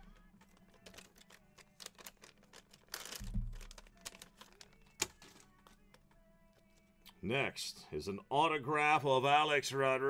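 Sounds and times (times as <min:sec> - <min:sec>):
cards clicking and tapping: 0:00.0 - 0:06.8
cards rustling: 0:00.0 - 0:07.0
faint background music: 0:00.0 - 0:10.0.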